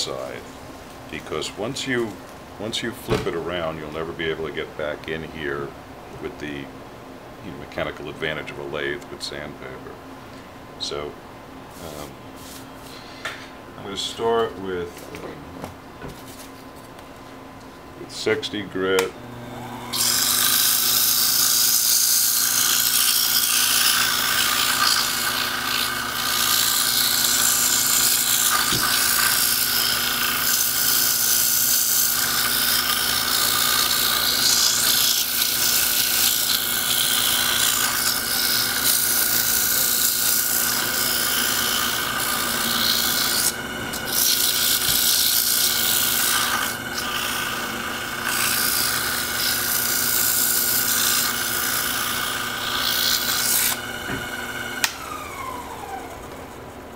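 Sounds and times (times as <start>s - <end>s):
lathe motor whine: 19.2s - 56.9s.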